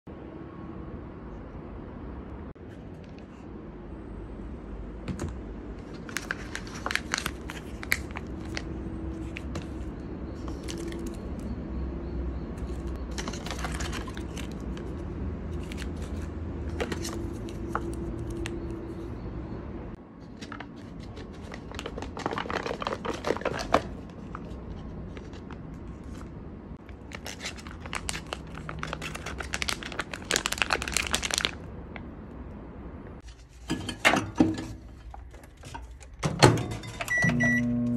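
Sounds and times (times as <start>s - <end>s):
plastic packaging crinkling: 5.9s - 11.4s, 12.6s - 18.6s, 20.4s - 31.7s.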